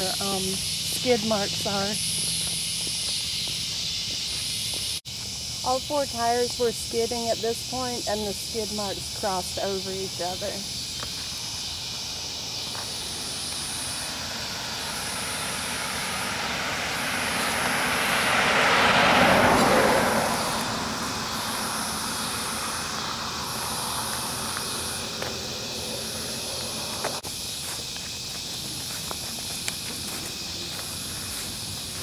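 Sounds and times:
high-pitched insect chorus: 0.0s - 32.0s
vehicle passing on road: 0.0s - 32.0s.

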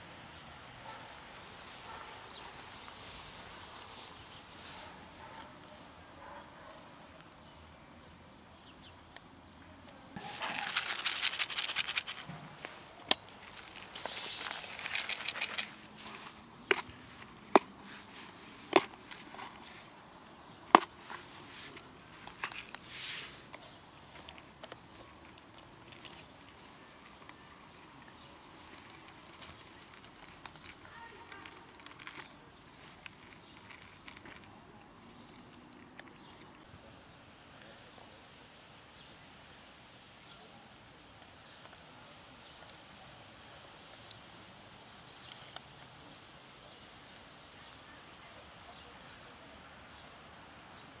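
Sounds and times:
outdoor background hiss: 0.0s - 51.0s
brief rustle: 10.2s - 19.8s.

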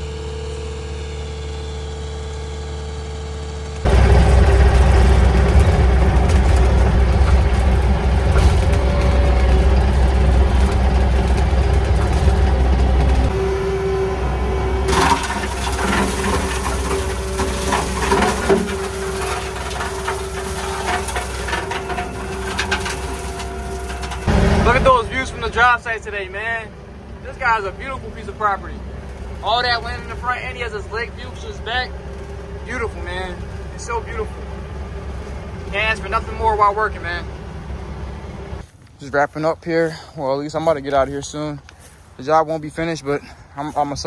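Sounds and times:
diesel engine running: 0.0s - 44.0s
clattering knocks: 14.9s - 25.6s.

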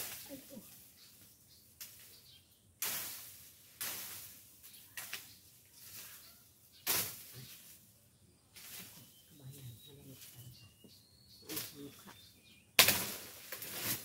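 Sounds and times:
swishing strokes through grass: 0.0s - 7.9s, 8.6s - 9.2s.

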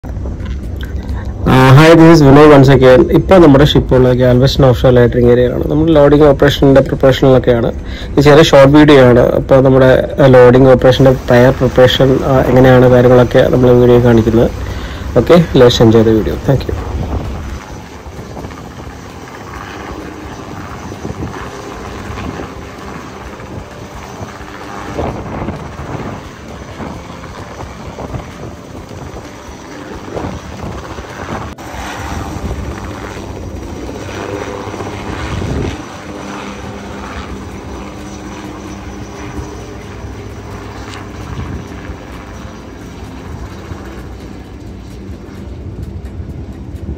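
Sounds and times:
engine drone: 0.0s - 46.9s
rushing swells: 10.4s - 46.9s.

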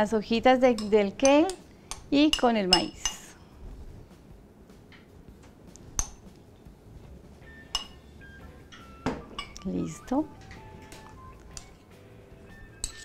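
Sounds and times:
glass bowl clinking against plate: 7.7s - 8.0s, 9.1s - 9.6s, 12.8s - 13.0s.

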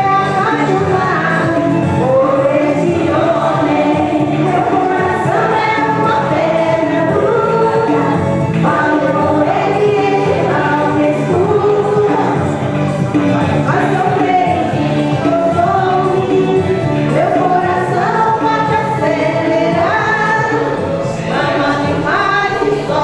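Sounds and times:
woman singing: 0.0s - 12.7s, 13.6s - 23.0s
instrumental accompaniment: 0.0s - 23.0s.

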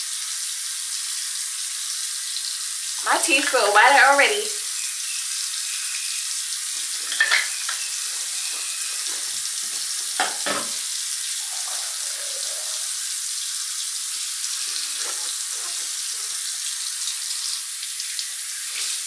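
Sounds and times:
tap running: 6.8s - 10.9s
mouthwash swishing and gargling: 11.4s - 13.1s.

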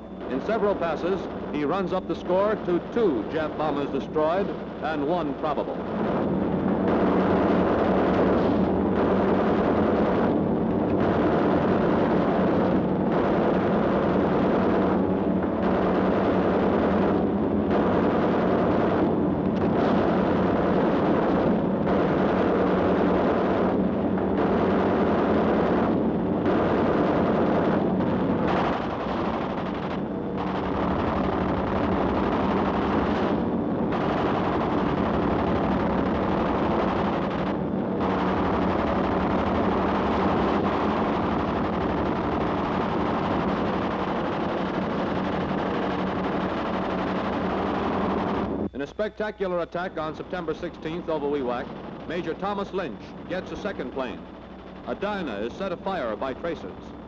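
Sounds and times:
explosion blasts: 0.2s - 48.7s
machine-gun fire: 5.9s - 48.5s.

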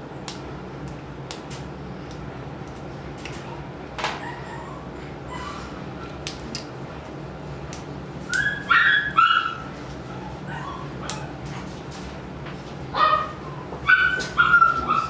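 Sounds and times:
puppy yelping: 4.1s - 5.8s, 8.3s - 11.4s, 13.0s - 15.0s
puppy whimpering: 4.1s - 6.1s, 8.3s - 11.4s, 13.1s - 15.0s.

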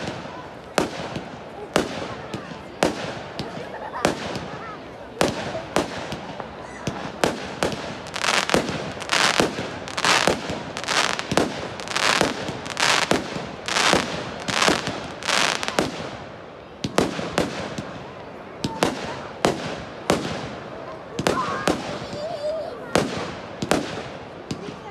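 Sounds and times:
fireworks bursting with sharp bangs: 0.0s - 24.9s
fireworks hiss: 5.2s - 16.3s.

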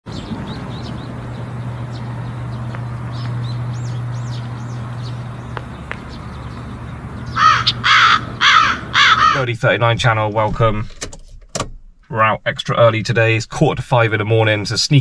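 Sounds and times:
small birds chirping: 0.1s - 9.4s
harsh bird calls: 0.1s - 9.5s
steady low hum: 0.1s - 11.0s.

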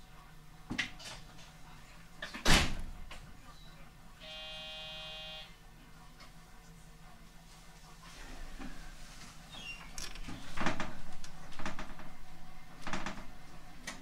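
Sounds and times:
electronic buzzer: 4.2s - 5.6s
low steady train hum: 10.7s - 14.0s.

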